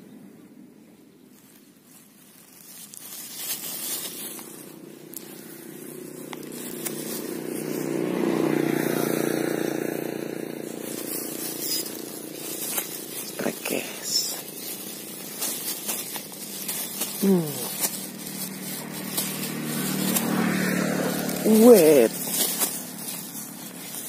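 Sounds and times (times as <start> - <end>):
vehicle engine passing by: 2.9 - 24.0.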